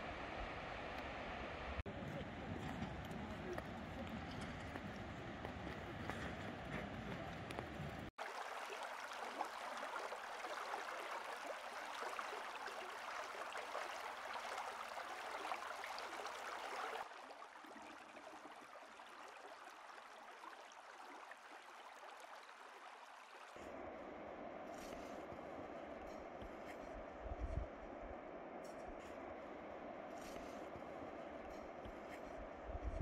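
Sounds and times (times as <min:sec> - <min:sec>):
mountain stream rushing over rocks: 0:07.5 - 0:23.7.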